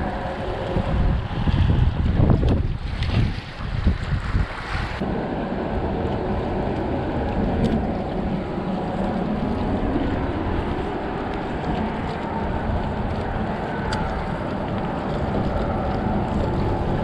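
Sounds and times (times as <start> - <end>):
wind buffeting microphone: 0.0 - 17.0
wind rushing: 0.0 - 17.0.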